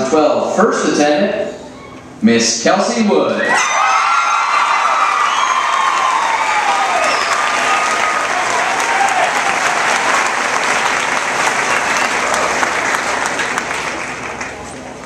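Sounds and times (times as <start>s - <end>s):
whoops and cheers: 3.4s - 10.3s
audience applauding: 3.8s - 15.0s.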